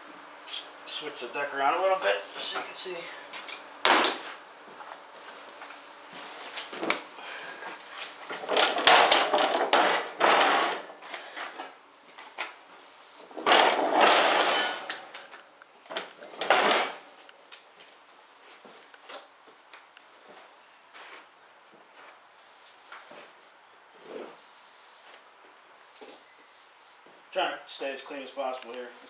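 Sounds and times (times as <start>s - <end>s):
metal mower deck scraping on wood floor: 8.3s - 10.9s, 13.3s - 15.2s.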